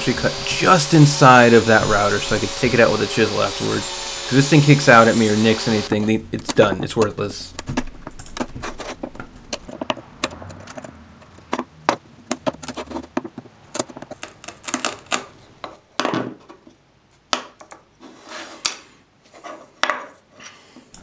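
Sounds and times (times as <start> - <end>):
chisel clicking and scraping wood: 7.6 - 15.8.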